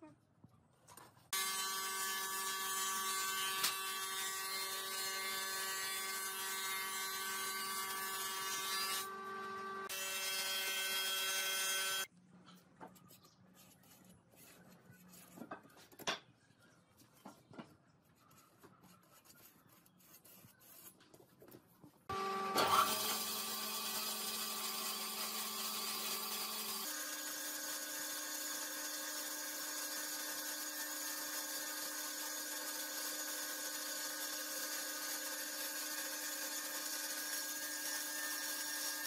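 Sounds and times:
power tool motor running: 22.1s - 39.0s.

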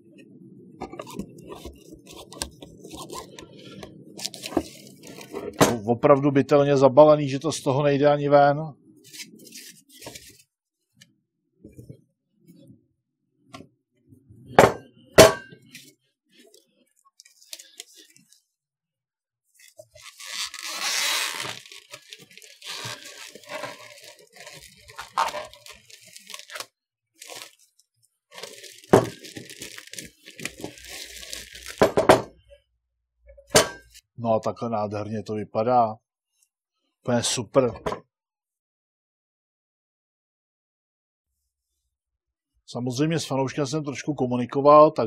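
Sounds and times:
plastic wrap crinkling and tearing: 4.2s - 5.6s, 15.8s - 18.4s, 19.6s - 31.9s.

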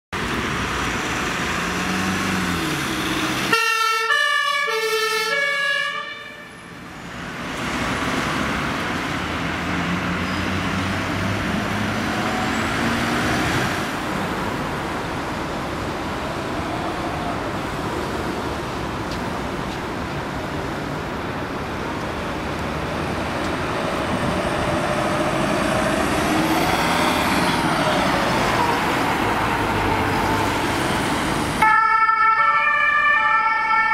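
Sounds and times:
traffic and engine noise: 0.1s - 33.9s
two-tone ambulance siren: 3.5s - 6.6s, 31.6s - 33.9s.

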